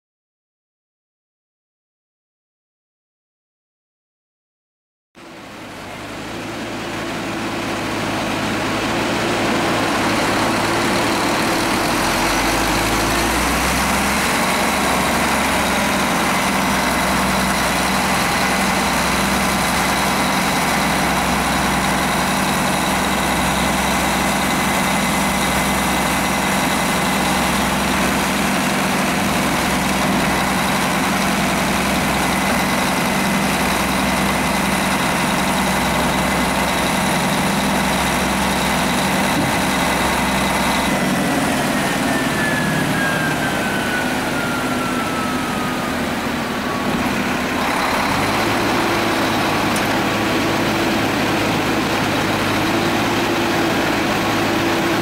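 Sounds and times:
diesel engine running: 0:05.2 - 0:55.0.

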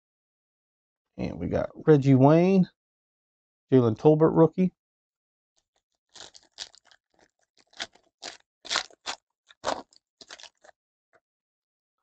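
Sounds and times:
foil pack crinkling and tearing: 0:06.1 - 0:10.7.

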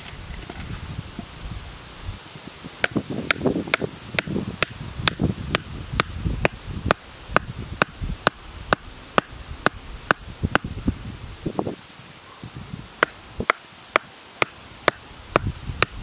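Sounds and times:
bamboo mallet knocking stake: 0:13.0 - 0:16.0.

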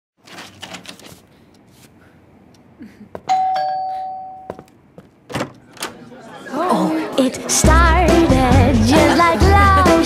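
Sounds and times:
two-tone doorbell chime: 0:03.3 - 0:04.7.

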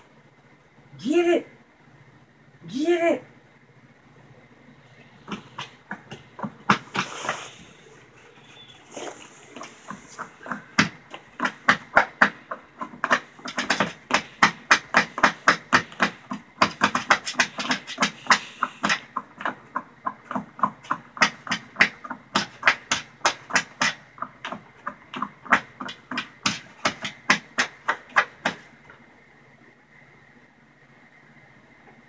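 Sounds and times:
dog breathing hard: 0:06.7 - 0:08.2, 0:08.8 - 0:10.8, 0:13.1 - 0:19.1.

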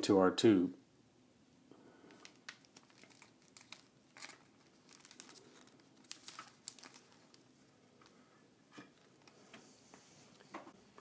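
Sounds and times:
cellophane crinkling: 0:02.1 - 0:08.2.

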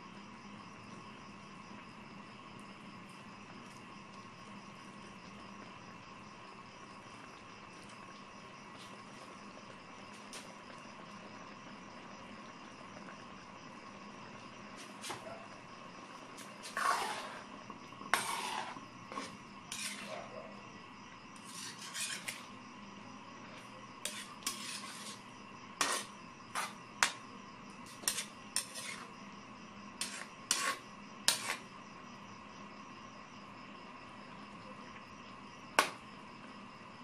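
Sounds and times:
metal utensil scraping a wok: 0:16.6 - 0:17.5, 0:18.1 - 0:20.2, 0:21.4 - 0:22.4, 0:24.0 - 0:25.2, 0:25.8 - 0:27.2, 0:27.8 - 0:29.1, 0:30.0 - 0:31.7.

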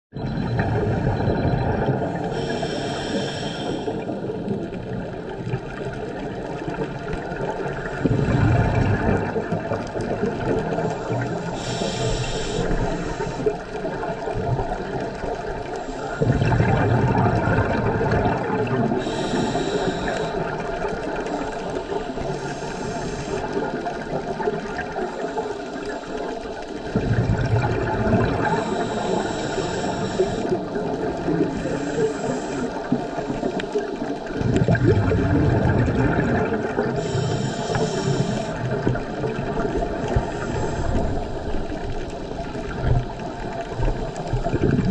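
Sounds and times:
bubbling exhaled air: 0:00.2 - 0:44.9
diver breathing through regulator: 0:02.0 - 0:04.5, 0:10.7 - 0:14.0, 0:18.9 - 0:24.1, 0:24.8 - 0:33.6, 0:35.7 - 0:39.0, 0:39.9 - 0:42.3.

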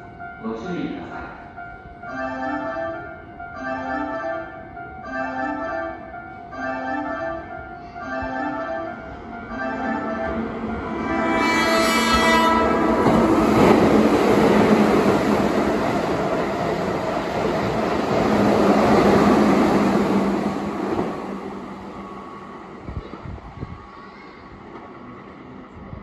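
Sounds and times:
electric train passing at speed: 0:00.0 - 0:26.0.

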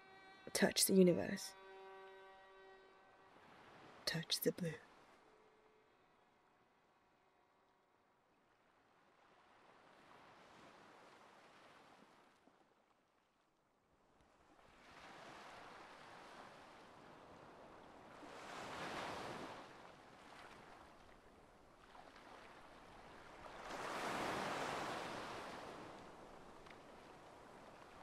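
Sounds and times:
ocean waves breaking: 0:00.8 - 0:06.3, 0:14.6 - 0:28.0.

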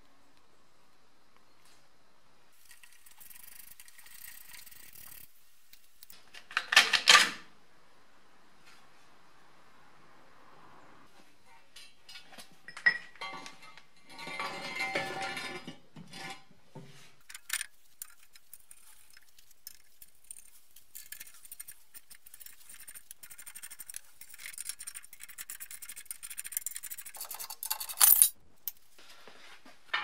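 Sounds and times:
metal tool clicking and scraping: 0:17.2 - 0:28.8
rapid metallic ticking: 0:17.3 - 0:27.7.

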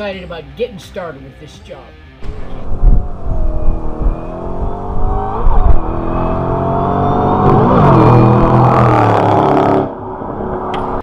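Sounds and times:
car engine accelerating hard: 0:02.2 - 0:10.7.

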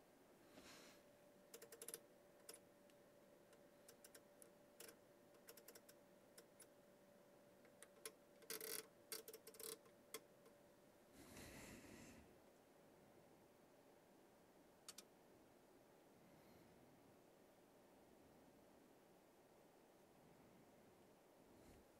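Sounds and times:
faint steady tone: 0:00.0 - 0:21.9
knobs and switches clicking: 0:01.5 - 0:02.6, 0:03.5 - 0:06.7, 0:07.6 - 0:10.6.

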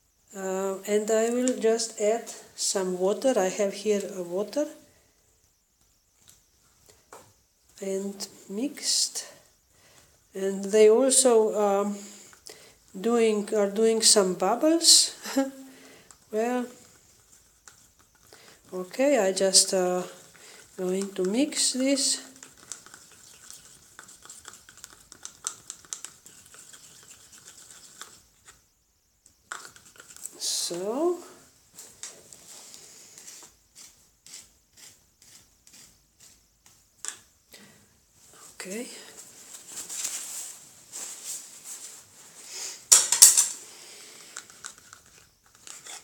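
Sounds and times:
stick stirring paint in plastic cup: 0:16.0 - 0:28.6, 0:29.5 - 0:30.5, 0:33.3 - 0:37.2.

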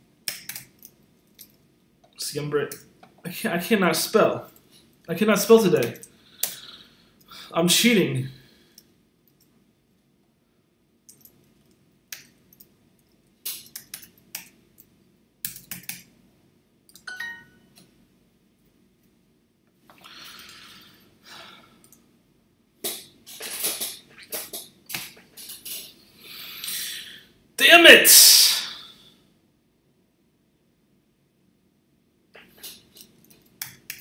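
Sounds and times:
keyboard typing: 0:00.3 - 0:01.0, 0:15.4 - 0:16.1
electronic chime: 0:17.1 - 0:17.6.

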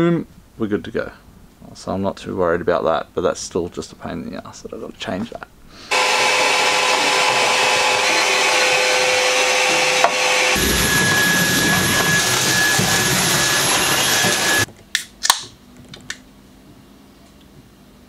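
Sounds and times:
stick vacuum whining: 0:05.9 - 0:14.7
vacuum humming: 0:05.9 - 0:14.7.

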